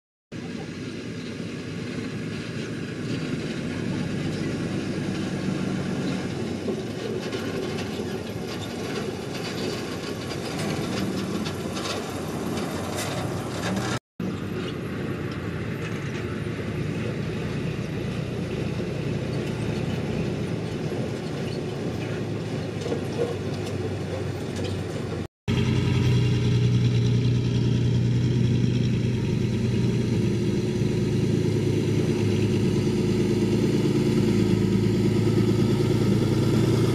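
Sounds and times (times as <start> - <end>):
trucks driving on dirt road: 0.3 - 36.9
low engine drone: 25.5 - 36.9.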